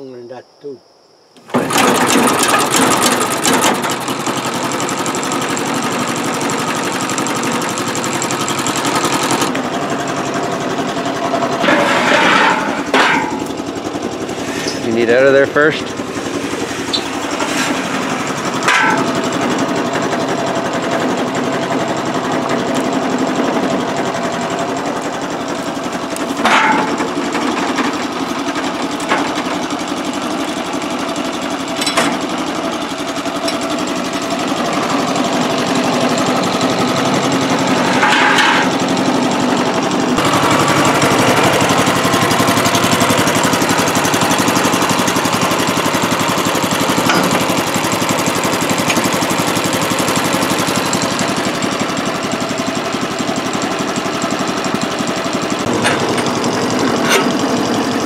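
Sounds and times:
gasoline engine running: 1.4s - 58.0s
sharp knocks on steel frame: 18.7s - 19.1s, 26.4s - 27.1s.

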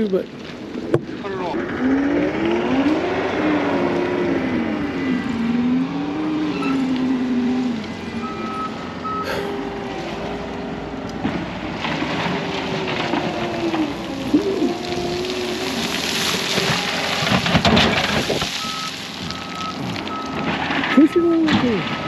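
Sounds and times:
diesel engine revving: 0.7s - 22.0s
backup alarm beeps: 8.2s - 9.3s, 18.6s - 22.0s
crackling rattle: 11.1s - 22.0s.

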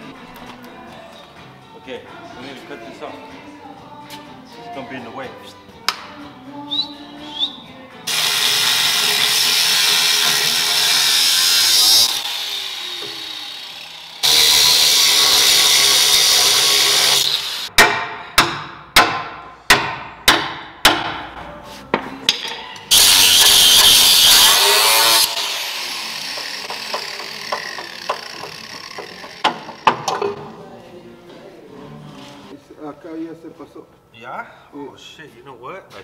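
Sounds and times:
angle grinder cutting steel: 8.1s - 17.7s, 22.9s - 30.2s.

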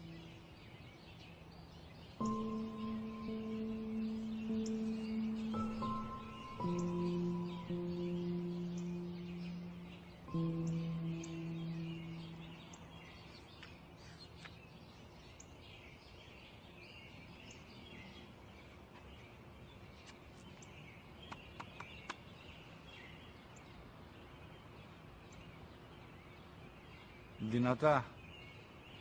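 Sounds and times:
birds chirping: 0.0s - 29.0s
held music note: 2.2s - 13.0s.

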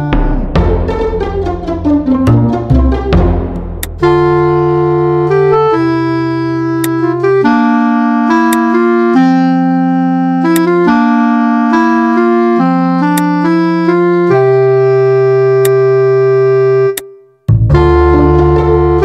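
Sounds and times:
keyboard chords: 0.0s - 19.0s.

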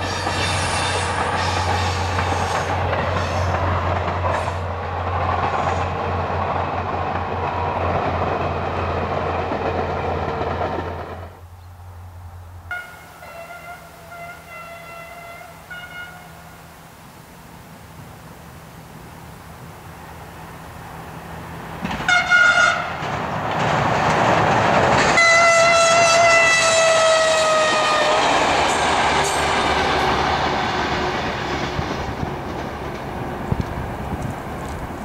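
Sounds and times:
train wheels clattering on rails: 0.0s - 11.4s, 21.7s - 35.0s
train horn blasts: 12.7s - 16.6s, 22.1s - 23.0s, 25.1s - 28.5s.

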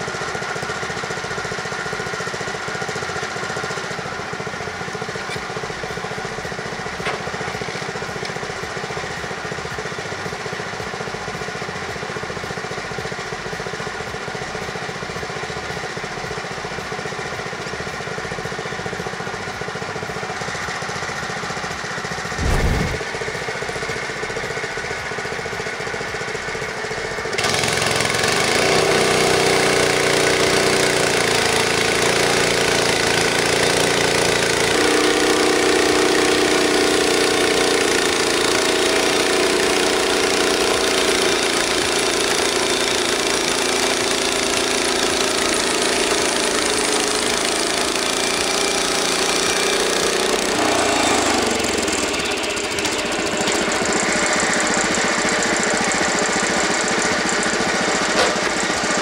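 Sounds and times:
small engine running: 0.0s - 59.0s
bandsaw blade cutting log: 22.2s - 23.9s, 27.3s - 59.0s.

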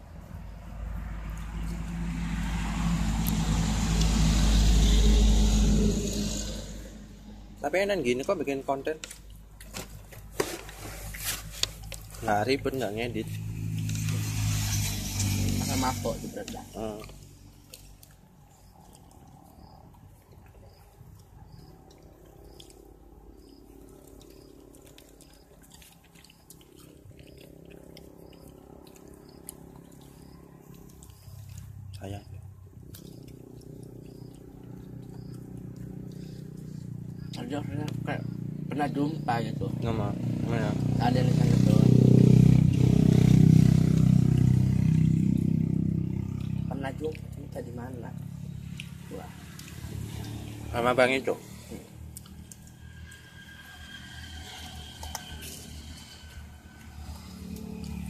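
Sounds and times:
vehicle engine passing by: 0.0s - 58.0s
person chewing: 16.8s - 37.3s, 48.6s - 50.6s, 51.6s - 58.0s
wet mouth clicks: 16.9s - 37.4s, 48.7s - 50.4s, 51.4s - 53.2s.

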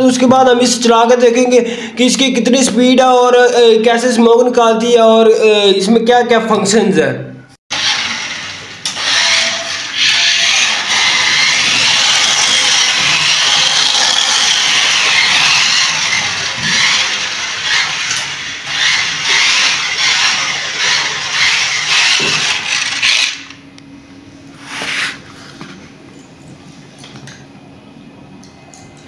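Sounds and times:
toy car electric motor whirring: 7.7s - 23.6s.

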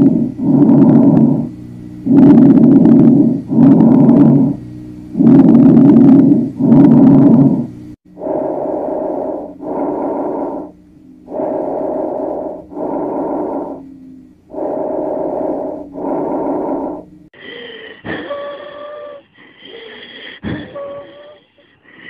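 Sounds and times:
breath sounds: 0.0s - 1.5s, 2.1s - 4.6s, 5.2s - 22.0s
wheezes with high musical tones: 17.4s - 21.8s.

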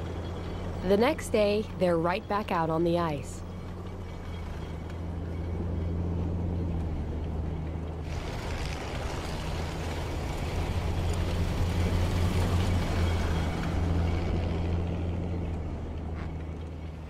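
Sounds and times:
engine low hum: 0.0s - 17.0s
tracks rushing over snow: 8.0s - 12.8s.

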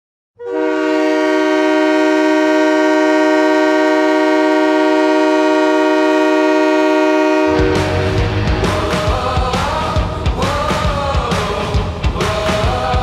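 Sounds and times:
hockey goal horn blast: 0.4s - 8.4s.

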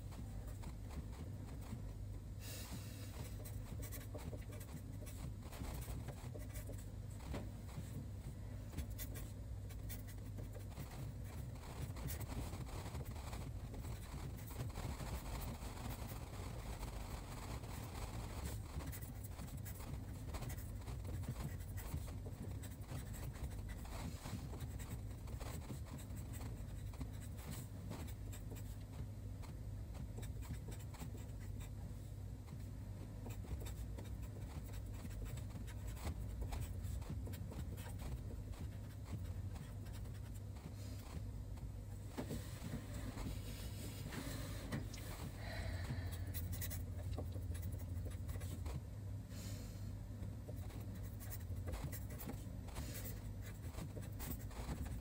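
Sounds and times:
marker pen scratching on paper: 0.0s - 2.0s, 2.7s - 48.8s, 50.4s - 55.0s
steady low hum: 0.0s - 55.0s.

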